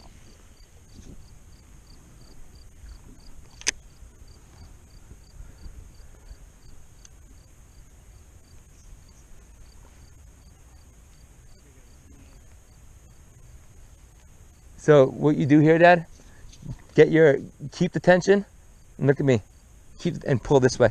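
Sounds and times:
crickets chirping: 0.0s - 20.9s
high insect hiss: 0.0s - 20.9s
sharp click: 3.5s - 3.8s.

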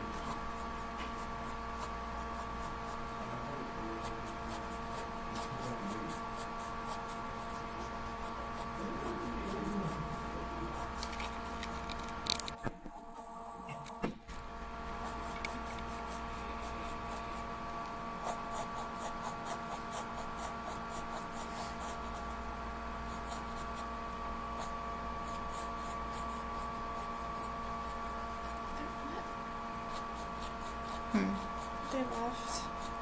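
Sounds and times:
pencil scratching on paper: 0.0s - 3.2s, 4.0s - 11.8s, 15.0s - 17.6s, 18.2s - 22.4s, 23.0s - 24.0s, 24.6s - 28.9s, 29.8s - 33.0s.

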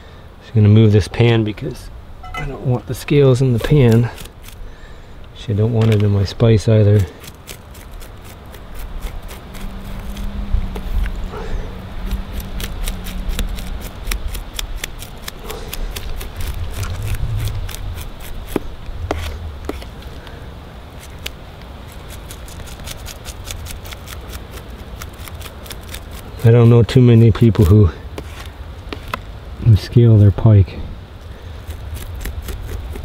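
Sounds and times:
knife scraping fish scales: 3.4s - 4.6s, 6.8s - 20.2s, 21.0s - 26.6s, 27.4s - 29.2s, 31.6s - 33.0s.

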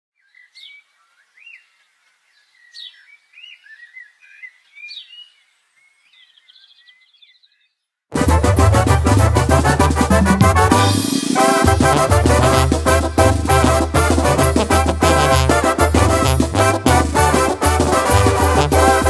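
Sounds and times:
birds chirping and calling: 0.2s - 7.8s
brass band playing: 8.1s - 19.0s
tuba notes: 8.1s - 19.0s
drum beat: 8.2s - 19.0s.

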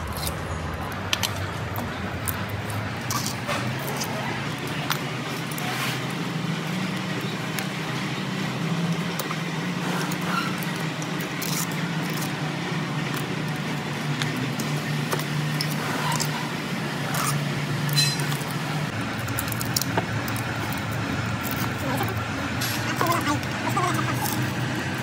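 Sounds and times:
metal tool scraping copper windings: 17.1s - 18.5s.

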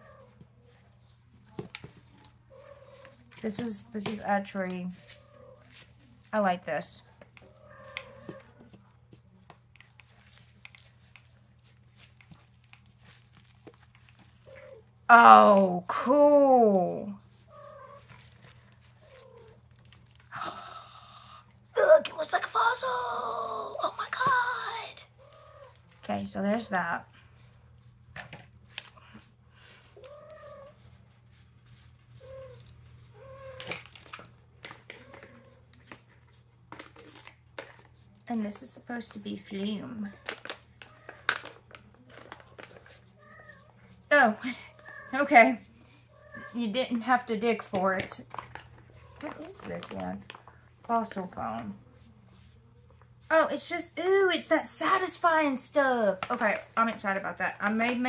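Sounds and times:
cat meowing: 30.0s - 30.8s, 46.2s - 46.6s.

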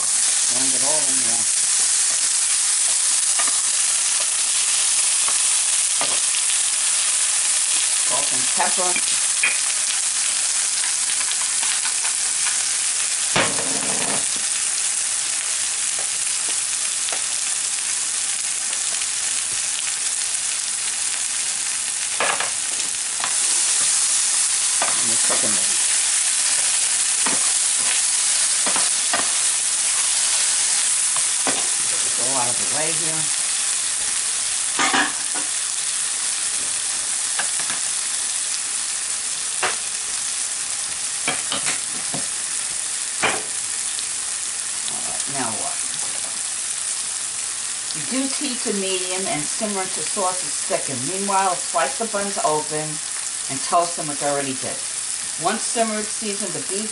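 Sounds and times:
sauce sizzling in a frying pan: 0.0s - 56.9s
spatula scraping and knocking pan: 26.5s - 30.5s.

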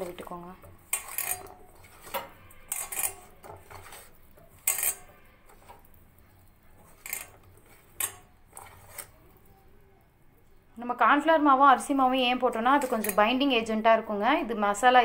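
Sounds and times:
hand mixing food on plate: 0.0s - 9.7s, 11.9s - 13.5s.

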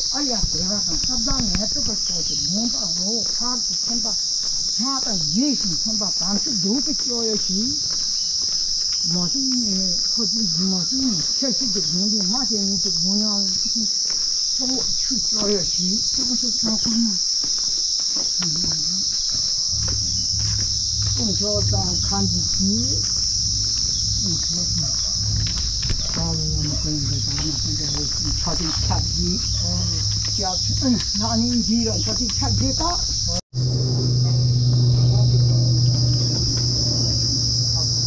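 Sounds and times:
insects shrilling: 0.0s - 38.0s
low rumble: 19.5s - 38.0s
man chanting: 21.1s - 23.2s.

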